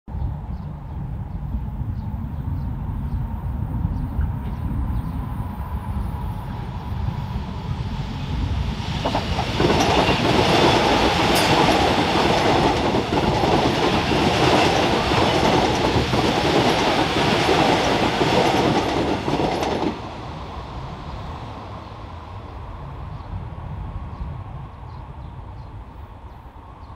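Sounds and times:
train wheels clattering over rails: 8.8s - 20.2s.

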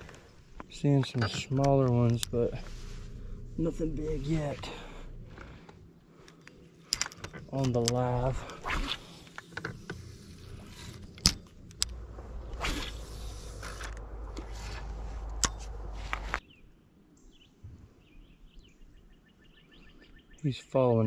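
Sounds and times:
steady low hum: 0.0s - 16.4s.

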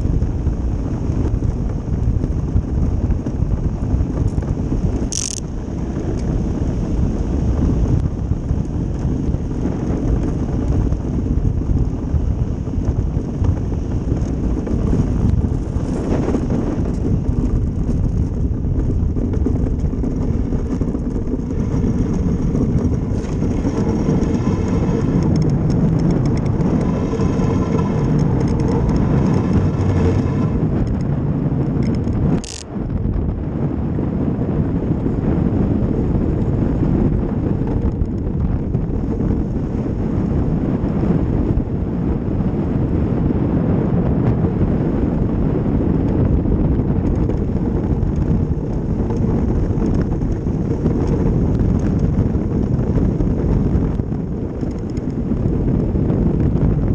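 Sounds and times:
runners rumbling over ice: 0.0s - 32.4s.

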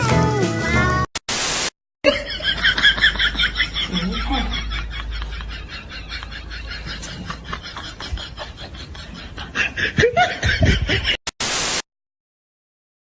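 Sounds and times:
burst of hiss: 1.2s - 1.7s, 11.4s - 11.8s
person laughing: 2.0s - 11.2s.

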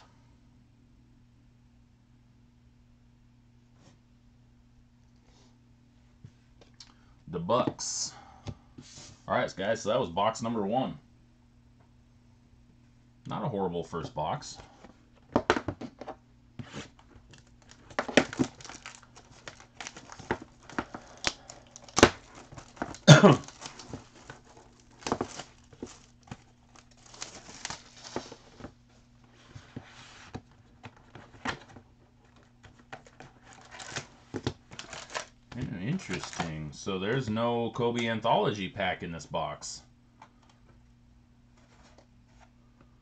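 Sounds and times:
foil packs crinkling: 16.6s - 29.7s, 30.4s - 36.6s
plastic wrapping tearing: 16.7s - 28.6s, 33.0s - 36.5s.

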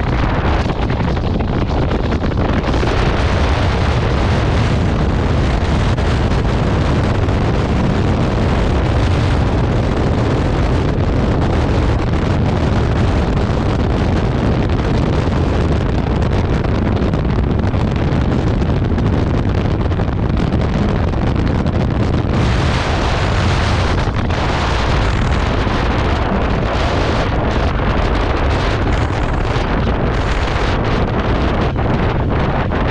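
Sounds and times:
loud wind rushing over microphone: 0.0s - 32.9s.

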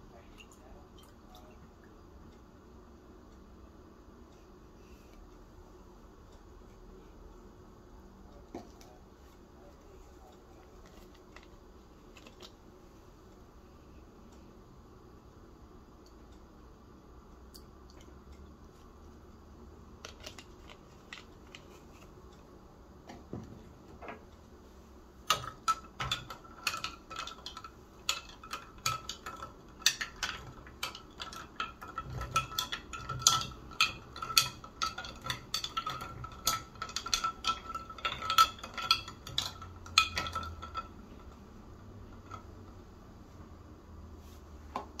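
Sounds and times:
spoon clinking in glass mug: 25.3s - 40.9s.

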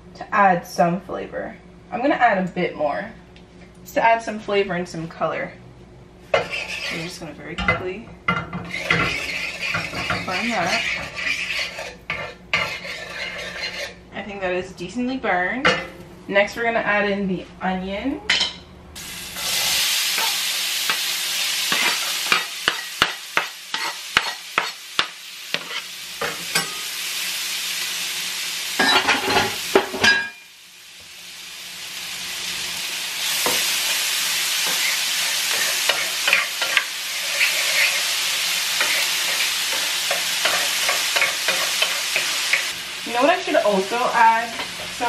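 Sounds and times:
onion sizzling in hot oil: 6.2s - 7.6s, 8.3s - 14.0s, 19.0s - 45.0s.

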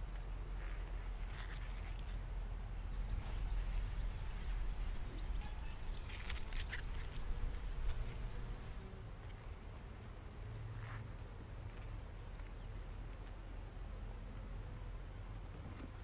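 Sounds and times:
wind rumbling on microphone: 0.0s - 11.9s
thin high-pitched whine: 2.9s - 8.9s.

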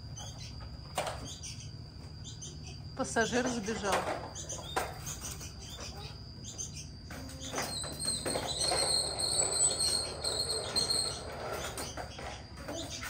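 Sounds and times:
bird chirping trill: 0.0s - 13.0s
toy truck wheels rattling on tiles: 7.5s - 12.8s.

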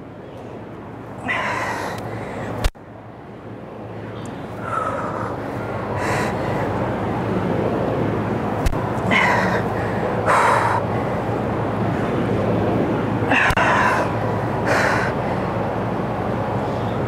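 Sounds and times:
steady background hum: 0.0s - 17.0s
person breathing hard: 1.2s - 2.7s, 4.6s - 6.8s, 9.1s - 11.3s, 13.3s - 15.6s.

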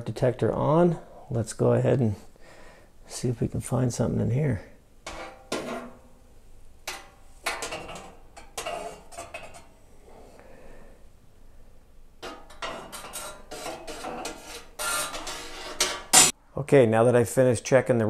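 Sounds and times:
wire oven racks clinking: 5.1s - 6.1s, 6.8s - 9.8s, 12.2s - 16.3s.

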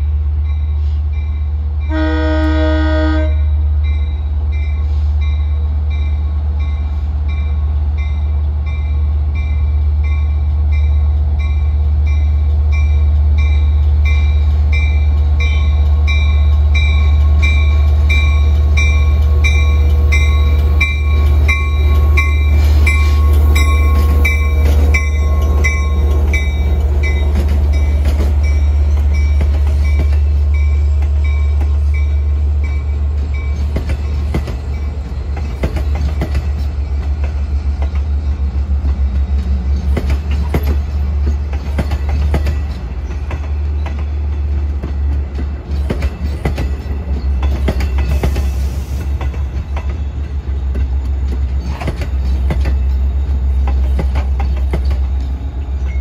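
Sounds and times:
diesel locomotive engine drone: 0.0s - 56.0s
wheels clacking over rail joints: 38.8s - 56.0s.

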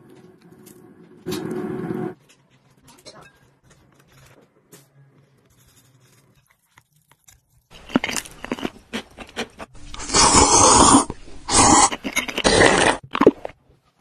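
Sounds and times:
crunching cucumber: 5.5s - 13.6s
slurping noodles: 7.8s - 13.6s.

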